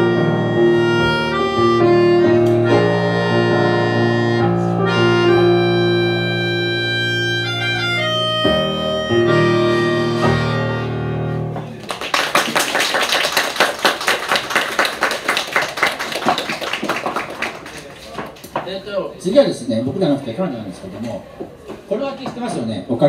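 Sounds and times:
melodica: 0.0s - 11.4s
digital piano: 0.0s - 11.8s
audience clapping: 11.7s - 18.6s.

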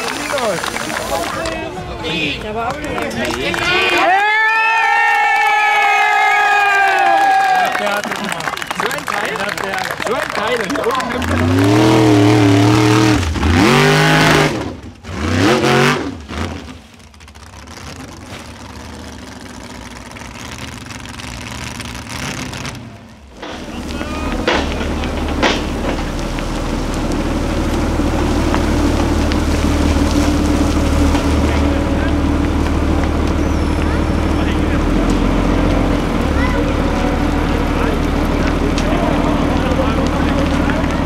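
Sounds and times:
off-road vehicle engine revving: 10.4s - 41.0s
low engine drone: 10.8s - 41.0s.

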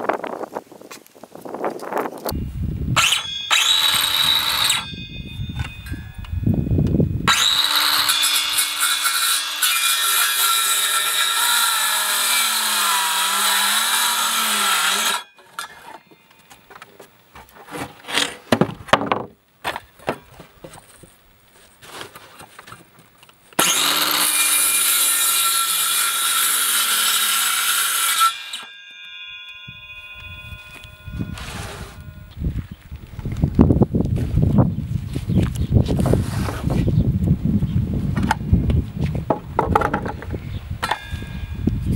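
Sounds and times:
circular saw cutting board: 2.3s - 16.6s, 23.6s - 32.4s
knocks and clatter of handling: 39.3s - 40.3s.

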